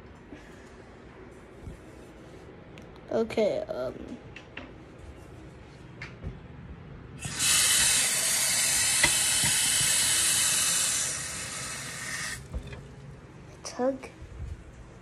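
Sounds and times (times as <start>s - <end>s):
water running from a tap: 7.2s - 12.8s.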